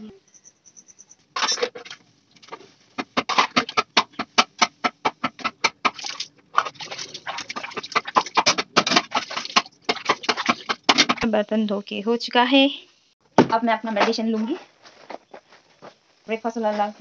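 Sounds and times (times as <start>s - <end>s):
plastic plate scrubbed: 1.4s - 11.2s
water splashed from bucket: 5.2s - 11.3s.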